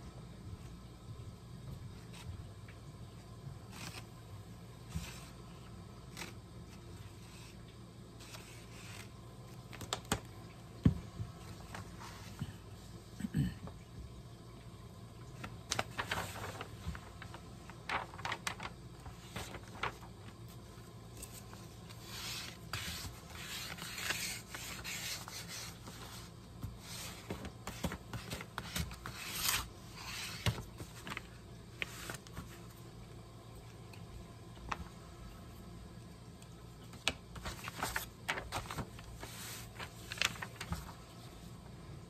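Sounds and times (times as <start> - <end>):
hands rubbing paper: 15.7 - 20.4, 21.3 - 31.2.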